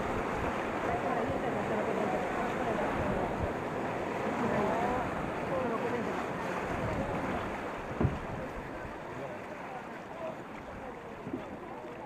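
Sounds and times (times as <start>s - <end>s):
river rapids rushing: 0.0s - 11.0s
short thump: 8.0s - 8.5s.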